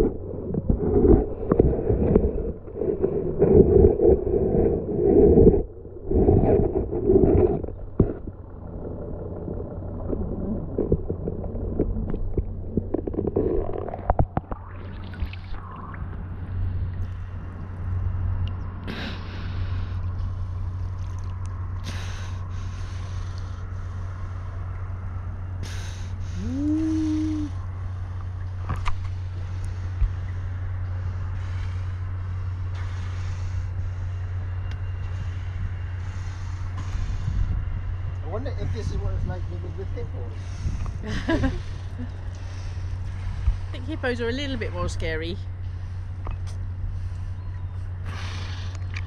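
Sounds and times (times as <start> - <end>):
water sloshing and splashing: 0.0 - 18.6, 19.8 - 21.8, 48.3 - 49.0
steady low hum: 0.0 - 49.0.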